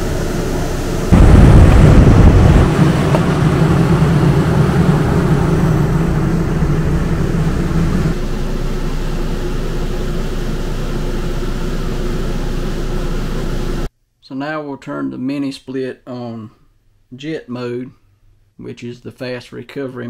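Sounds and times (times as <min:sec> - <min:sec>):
air conditioner hum with rushing air: 0:00.0 - 0:13.9.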